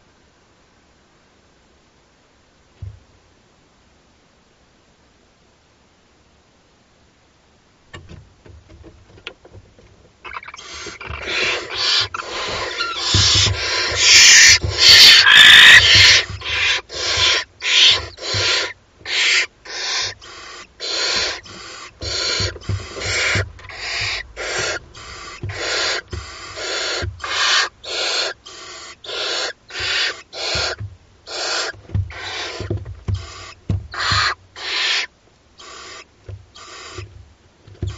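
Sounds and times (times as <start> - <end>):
owl chicks hissing calls: 10.2 - 37.2.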